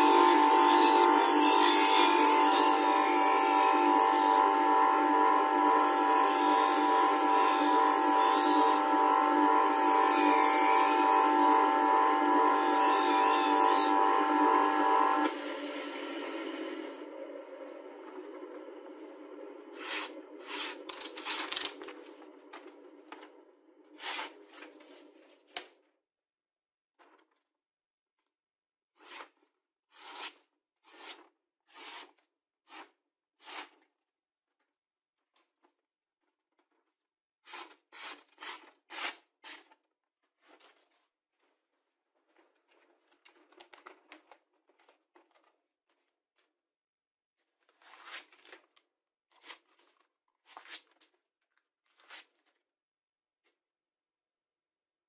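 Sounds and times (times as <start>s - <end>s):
knife slicing through paper: 19.8s - 22.0s, 29.0s - 33.8s, 37.4s - 39.8s.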